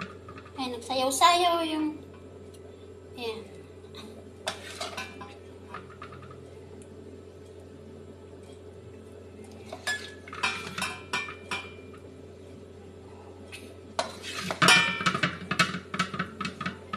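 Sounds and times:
steady low hum: 0:00.0 - 0:16.9
ladle scraping metal wok: 0:04.5 - 0:05.2, 0:14.0 - 0:15.2.

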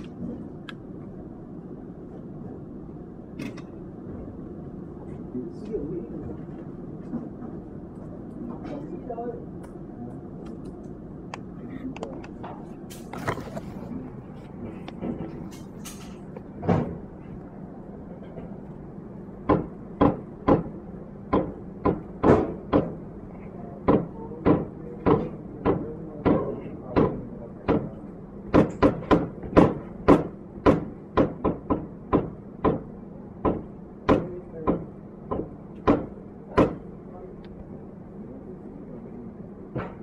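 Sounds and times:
steady low hum: 0:00.0 - 0:40.0
sharp knocks: 0:19.4 - 0:23.0, 0:23.8 - 0:36.8.

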